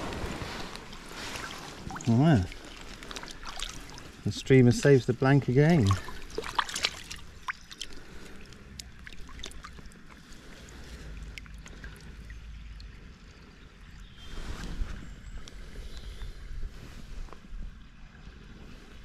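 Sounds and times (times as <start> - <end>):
river washing: 0.0 - 12.4
water splashes and drips: 0.1 - 14.0.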